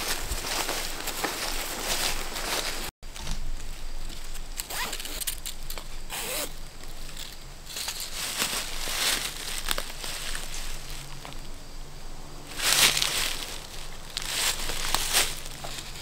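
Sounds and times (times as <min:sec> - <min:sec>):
rustling in dry leaves: 0:00.0 - 0:16.0
strap cinching scratchy rasps: 0:06.1 - 0:06.6.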